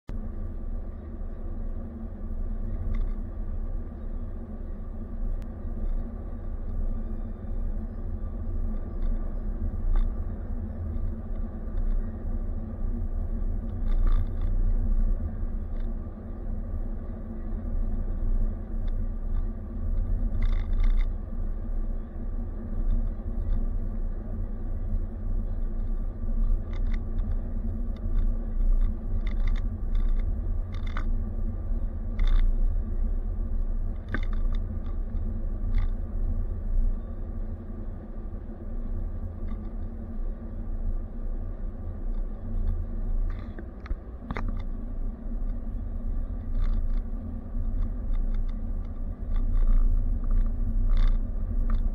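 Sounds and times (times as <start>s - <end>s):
car road and engine rumble: 0.0s - 51.9s
light clicks and rattles: 2.6s - 3.3s, 8.4s - 16.1s, 17.9s - 21.2s, 24.9s - 32.8s, 33.6s - 37.0s, 38.3s - 40.2s, 41.4s - 51.9s.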